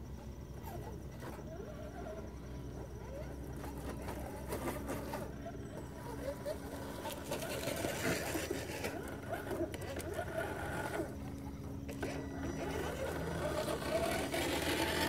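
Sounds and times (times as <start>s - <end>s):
small electric motors whining: 0.0s - 15.0s.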